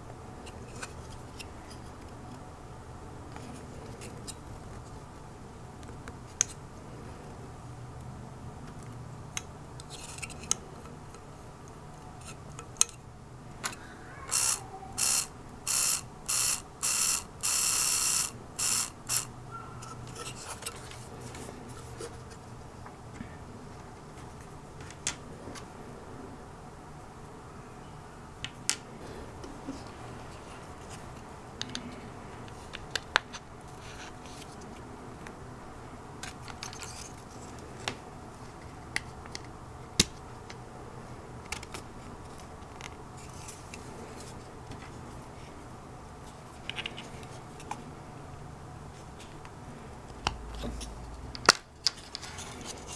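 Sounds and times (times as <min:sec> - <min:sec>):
plastic gears turning: 0:14.3 - 0:19.3.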